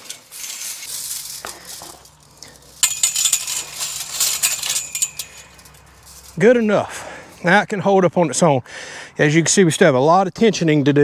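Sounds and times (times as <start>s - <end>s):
chain-link fence wire jingling: 0.0s - 7.6s.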